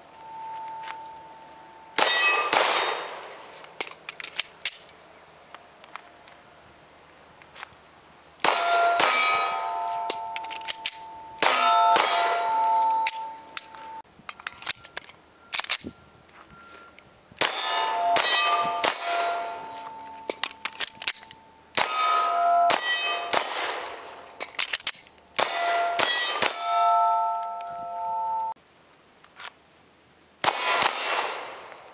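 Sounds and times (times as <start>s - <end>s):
steel targets ringing: 0.2s - 3.2s, 8.4s - 14.0s, 17.4s - 20.7s, 21.4s - 24.3s, 25.4s - 28.6s
pistol shots: 2.0s - 3.4s, 8.4s - 13.2s, 17.4s - 19.7s, 21.8s - 24.2s, 30.4s - 31.8s.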